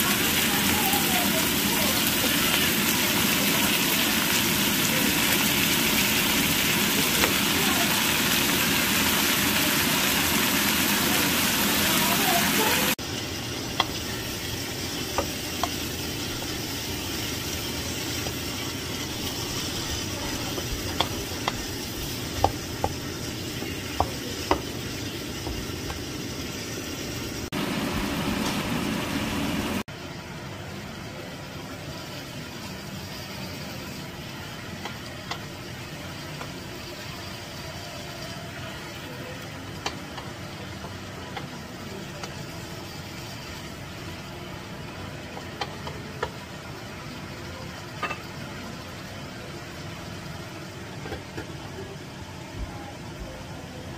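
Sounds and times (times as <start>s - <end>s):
meat sizzling in a frying pan: 0.0s - 52.4s
spatula clacking against pan: 20.5s - 21.7s.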